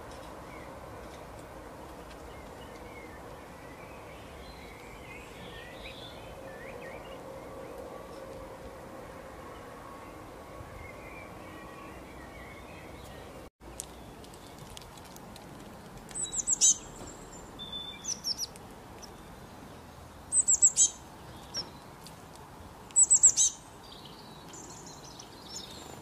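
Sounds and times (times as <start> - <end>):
faint outdoor hiss: 0.0 - 26.0
small songbird calling: 16.1 - 19.4, 20.3 - 21.9, 22.9 - 26.0.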